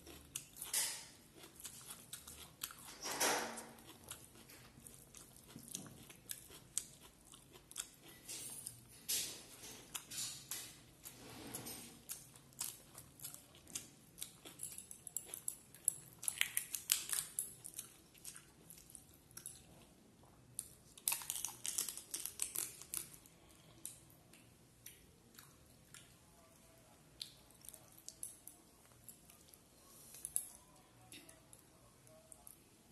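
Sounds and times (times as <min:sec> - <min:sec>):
chewing with wet mouth clicks: 0:00.0 - 0:03.0, 0:03.6 - 0:08.9, 0:12.0 - 0:26.6, 0:27.2 - 0:32.6.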